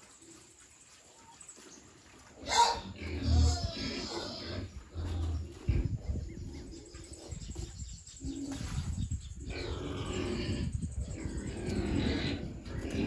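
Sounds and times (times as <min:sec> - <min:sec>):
pigs grunting: 0:02.2 - 0:08.6, 0:09.4 - 0:13.0.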